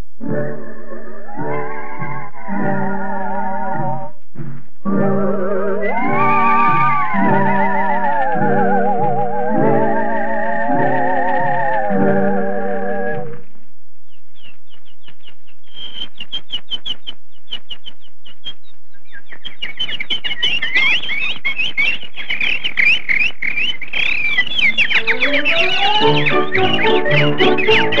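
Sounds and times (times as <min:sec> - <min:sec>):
cartoon birds chirping: 0:00.2 - 0:04.1, 0:04.8 - 0:13.4, 0:14.4 - 0:28.0
music: 0:00.2 - 0:13.4, 0:24.7 - 0:28.0.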